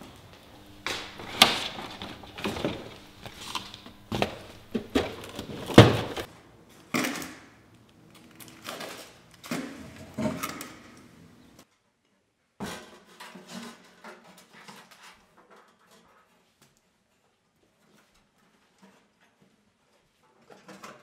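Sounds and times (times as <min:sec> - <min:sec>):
objects knocking and clattering: 0:00.0 - 0:06.3
rattling and scraping: 0:00.4 - 0:06.3.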